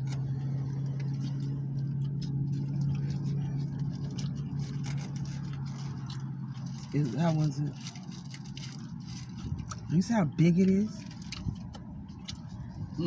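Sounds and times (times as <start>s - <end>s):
chewing clicks: 0.0s - 9.9s, 11.0s - 12.7s
foil wrapper crinkling: 0.0s - 9.9s
car engine idling: 0.0s - 13.0s.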